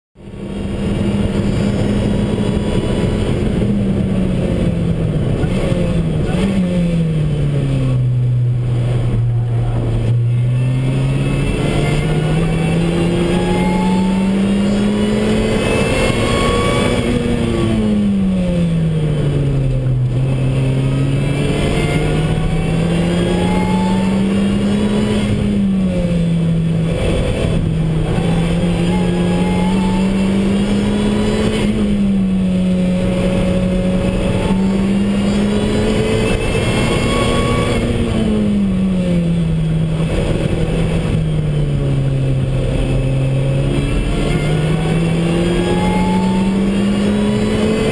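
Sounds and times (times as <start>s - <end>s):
car engine revving: 0.2s - 47.9s
road and wind noise: 0.2s - 47.9s.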